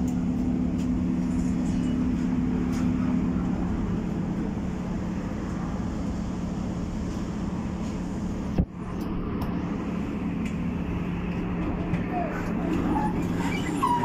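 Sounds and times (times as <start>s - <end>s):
tram running rumble and hum: 0.0s - 14.0s.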